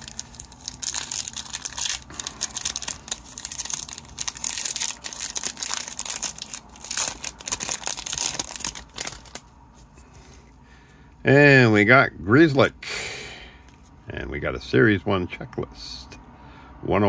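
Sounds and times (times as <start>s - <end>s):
plastic wrapper crinkling and tearing: 0.0s - 9.5s.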